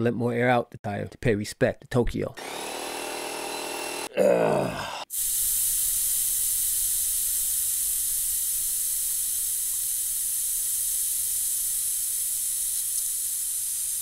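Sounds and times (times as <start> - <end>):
air hissing from tyre valve: 5.1 - 14.0.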